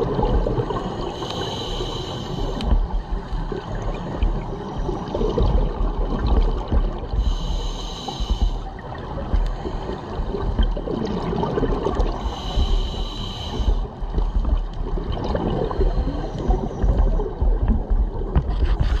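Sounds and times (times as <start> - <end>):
exhaled bubbles gurgling: 0.0 - 19.0
hissing regulator inhalations: 0.8 - 2.8, 7.2 - 10.6, 12.1 - 14.5.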